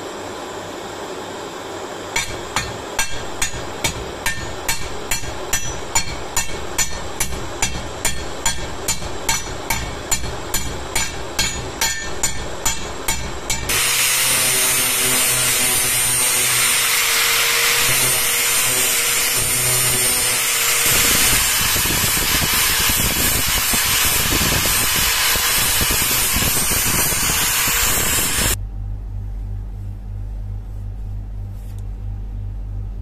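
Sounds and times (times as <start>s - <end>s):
angle grinder grinding steel: 13.6s - 28.6s.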